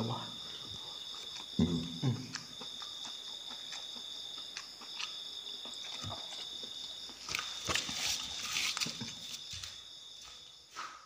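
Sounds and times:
insects chirring: 0.0 - 11.0
rustle: 7.3 - 9.4.

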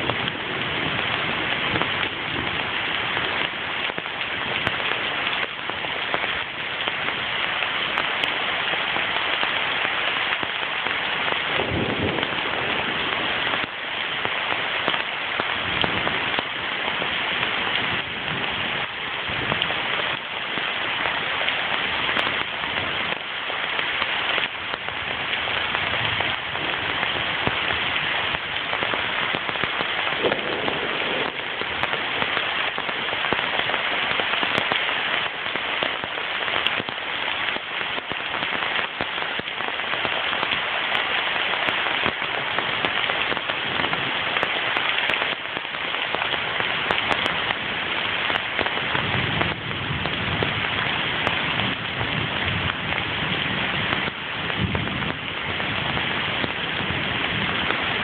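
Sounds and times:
rain on leaves and ground: 0.0 - 58.0
low thunder rumble: 11.4 - 13.7, 25.6 - 33.6.

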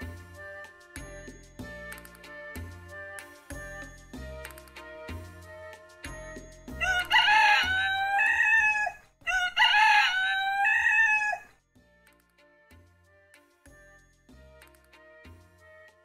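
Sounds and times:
rooster crowing: 6.8 - 11.5.

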